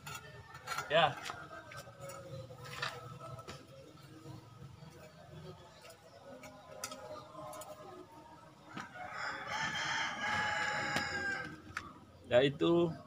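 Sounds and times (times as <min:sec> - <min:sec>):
rooster crowing: 0:08.7 - 0:11.8.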